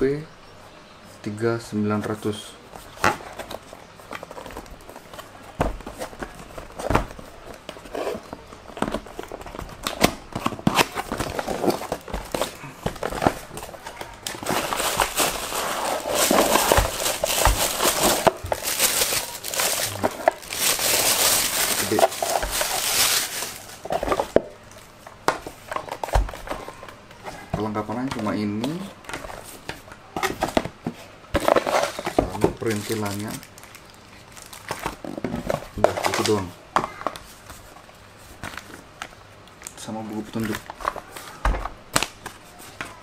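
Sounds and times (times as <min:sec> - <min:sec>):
cardboard box being opened: 0:03.2 - 0:24.4
plastic bag crinkling: 0:10.5 - 0:24.9, 0:31.5 - 0:35.1.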